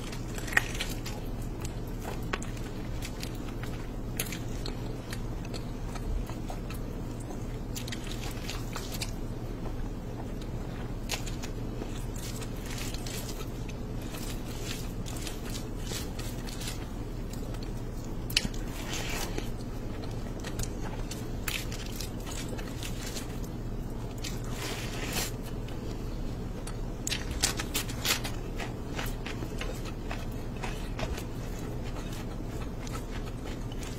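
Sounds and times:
crunchy bites: 0.0 - 9.4
person chewing noodles: 0.0 - 33.9
steady low hum: 0.0 - 33.9.

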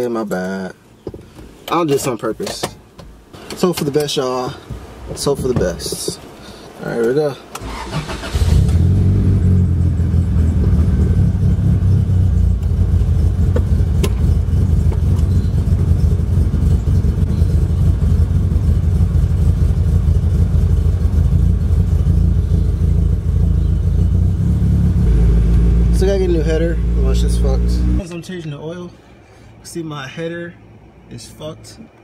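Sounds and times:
car engine running: 8.3 - 28.0.

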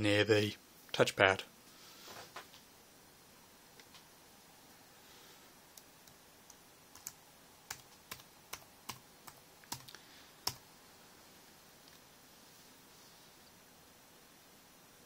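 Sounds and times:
keyboard typing clicks: 6.0 - 9.0.

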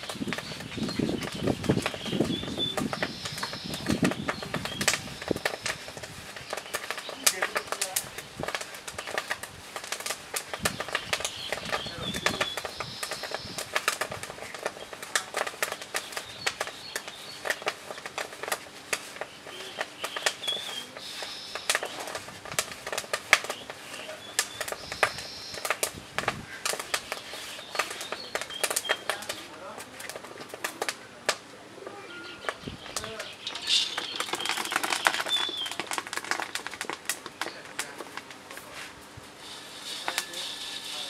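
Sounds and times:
bird calling: 0.0 - 5.8, 10.5 - 13.9, 19.2 - 22.2, 23.4 - 25.8, 31.8 - 35.8
sharp clicks and crackles: 0.0 - 38.8, 39.4 - 41.0.

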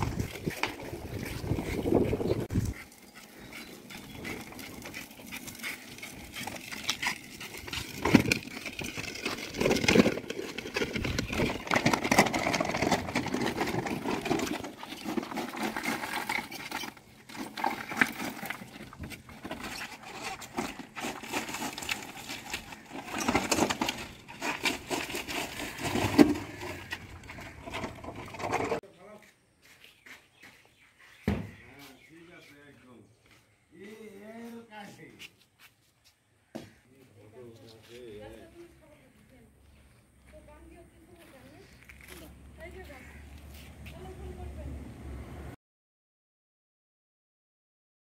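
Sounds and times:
rubble rattling and clattering: 0.0 - 2.8, 3.5 - 28.8
wheelbarrow being wheeled: 0.0 - 28.8.

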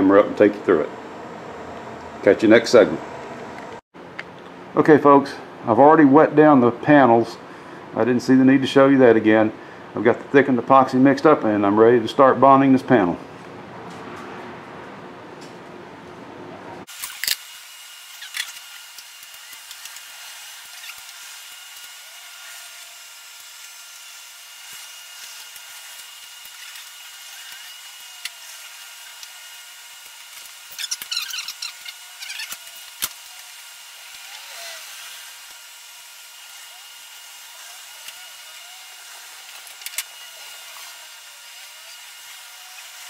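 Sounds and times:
hand tool scraping epoxy: 18.0 - 43.0.

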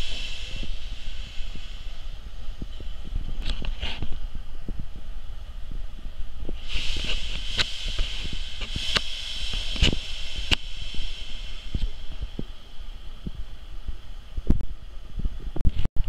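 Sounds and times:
steam hissing from locomotive: 0.0 - 15.4.

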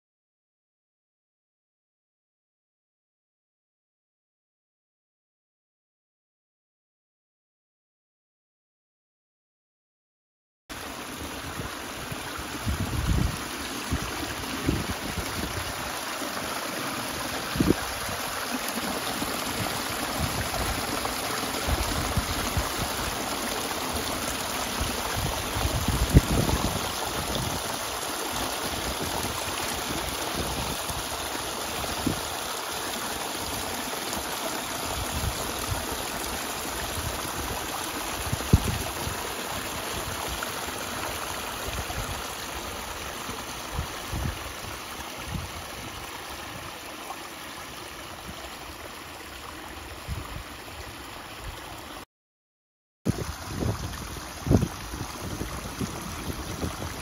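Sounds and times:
waterfall splashing over rocks: 10.7 - 49.9, 53.1 - 57.0.

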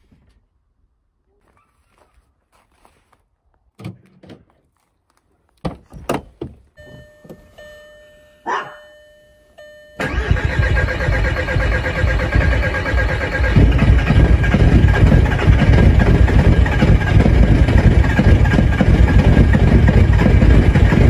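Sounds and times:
diesel engine starting and running: 6.0 - 21.0.

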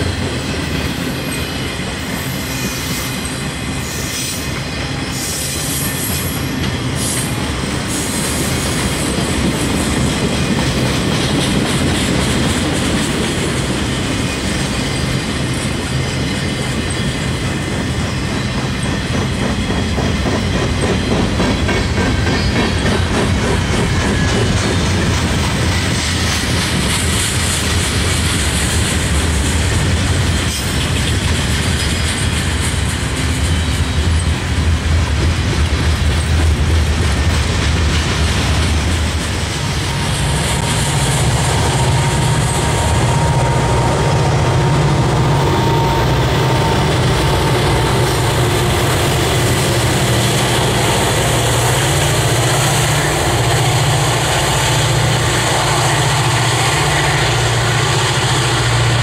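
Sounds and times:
diesel locomotive drone: 0.0 - 59.0
train wheels clacking on rails: 0.0 - 59.0.

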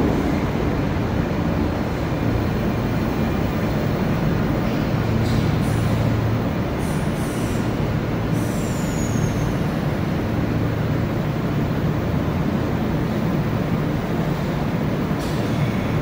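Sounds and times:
high wheel squeals: 8.4 - 9.5.

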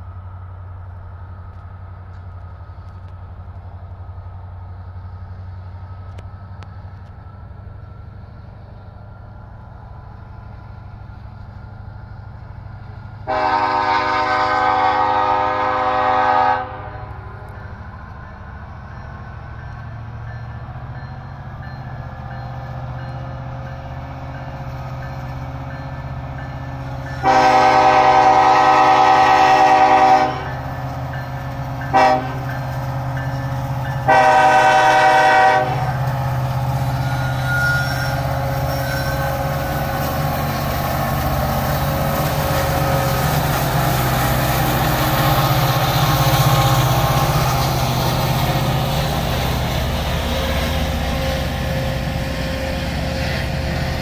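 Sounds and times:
diesel locomotive engines rumbling: 0.0 - 54.0
locomotive horn blasts: 13.3 - 17.5, 27.2 - 30.7, 31.8 - 32.6, 34.0 - 36.0.

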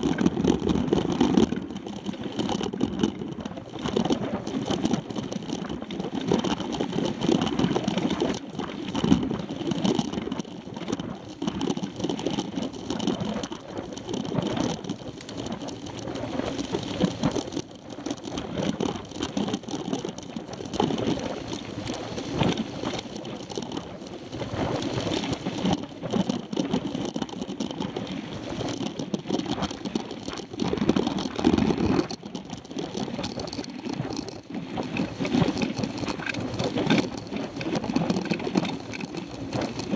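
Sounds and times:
bike knocks and rattles: 0.0 - 5.7, 28.7 - 39.9
bike rolling on dirt road: 0.0 - 39.9.

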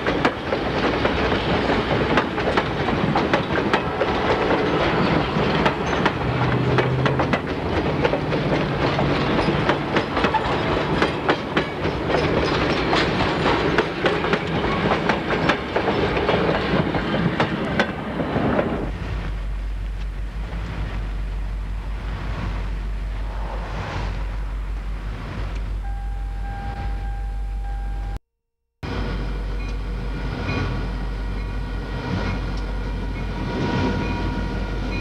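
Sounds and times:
train wheels clicking over rails: 0.0 - 21.4
train running rumble: 0.0 - 28.2.

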